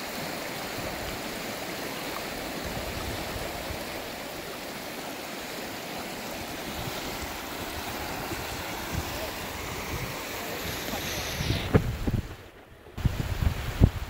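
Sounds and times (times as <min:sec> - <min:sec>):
river rushing over gravel: 0:00.0 - 0:14.0.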